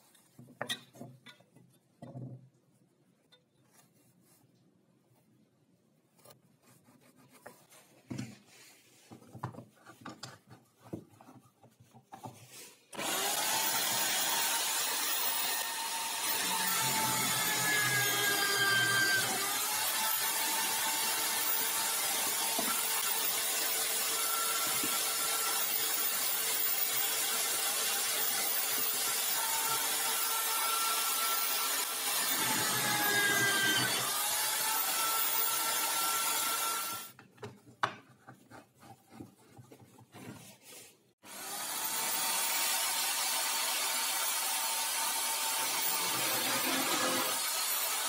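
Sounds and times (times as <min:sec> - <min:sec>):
electric drill boring into wood: 0:12.9 - 0:37.1, 0:41.3 - 0:48.0.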